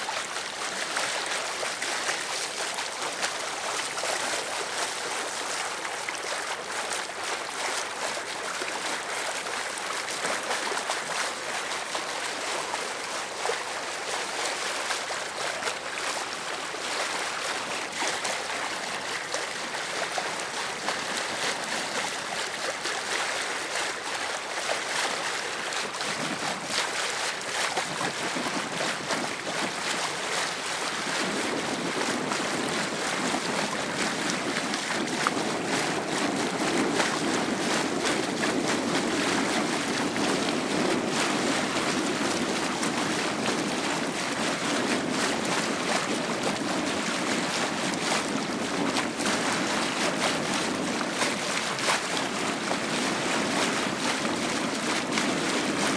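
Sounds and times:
sea water lapping and splashing: 0:00.0 - 0:55.9
wind on microphone: 0:00.0 - 0:55.9.

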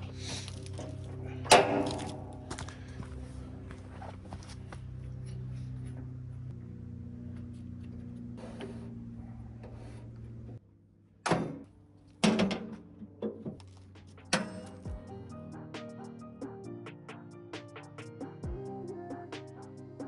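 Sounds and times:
steady low hum: 0:00.0 - 0:16.8
metal cover thunks shut: 0:01.5 - 0:02.3, 0:11.2 - 0:13.6.

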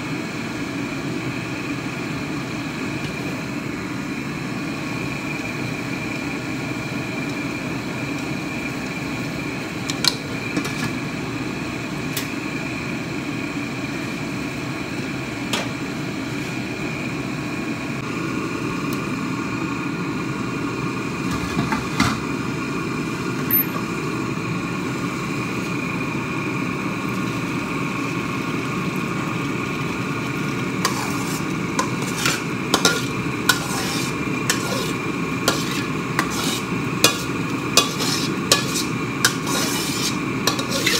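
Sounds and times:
kitchen hum: 0:00.1 - 0:40.9
chopsticks and cookware clinking: 0:30.9 - 0:34.9.

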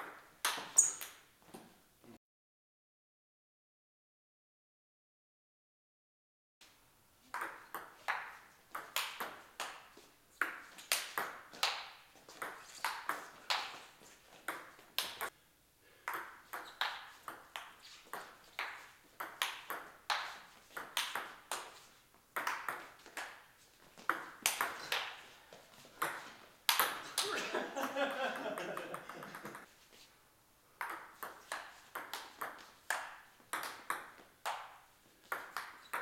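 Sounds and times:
table tennis ball clicking: 0:16.1 - 0:21.6.

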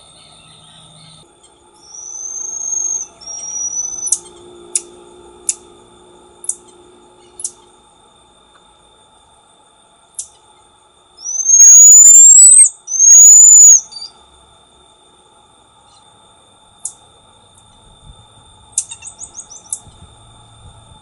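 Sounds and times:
marmoset short chirps: 0:01.8 - 0:04.3, 0:11.2 - 0:14.1, 0:18.8 - 0:19.8
marmoset whistles: 0:01.8 - 0:04.3, 0:11.2 - 0:14.2, 0:18.8 - 0:19.8.

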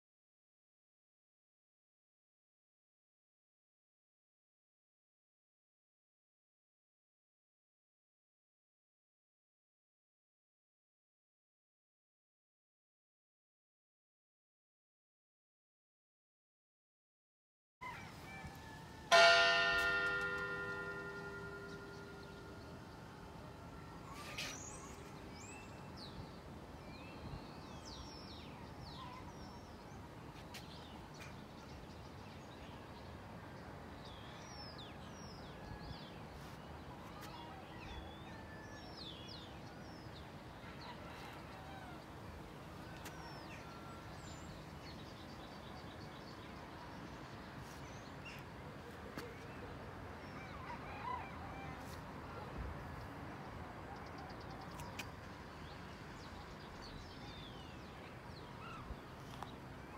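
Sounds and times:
outdoor ambient hiss: 0:39.4 - 0:59.9.

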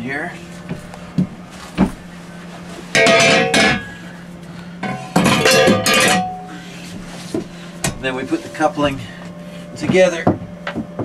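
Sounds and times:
low steady hum: 0:00.0 - 0:11.0
metal housing scraping on bracket: 0:02.6 - 0:04.1.

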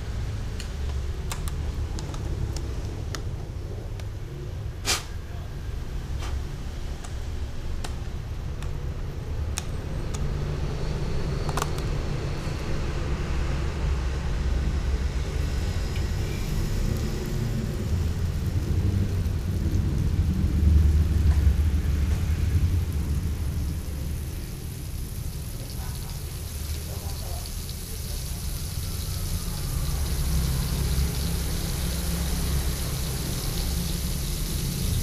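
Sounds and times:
gas burner rumble: 0:00.0 - 0:35.0.

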